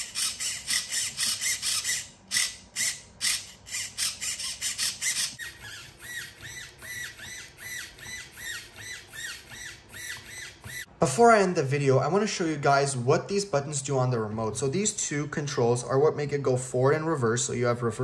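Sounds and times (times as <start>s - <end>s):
servo motor buzzing: 0.0s - 10.9s
servo whining: 0.0s - 10.9s.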